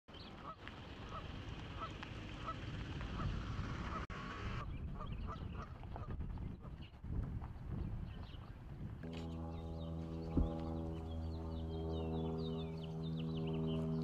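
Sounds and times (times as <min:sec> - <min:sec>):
geese honking: 0:00.4 - 0:02.6
steady low rumble: 0:07.4 - 0:14.0.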